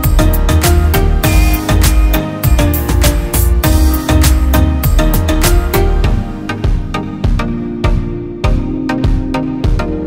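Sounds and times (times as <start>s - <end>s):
held synth notes: 0.0s - 7.4s
steady beat: 0.0s - 8.1s.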